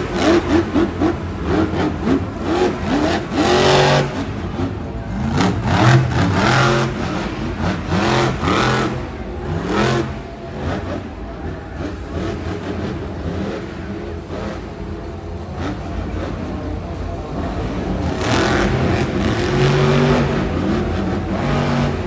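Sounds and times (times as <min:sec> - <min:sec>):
monster truck engine revving: 0:00.0 - 0:22.0.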